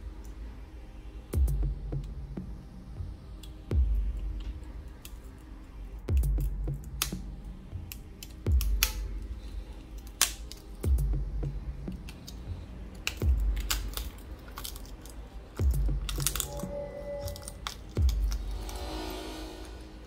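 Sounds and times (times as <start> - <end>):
slow deep bass beat: 1.3 - 4.9, 5.8 - 9.4, 10.8 - 14.0, 15.5 - 20.0.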